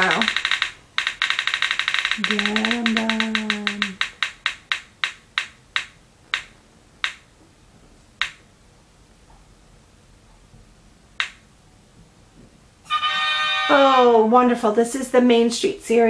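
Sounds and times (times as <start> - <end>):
prize wheel ticking: 0.0 - 7.2.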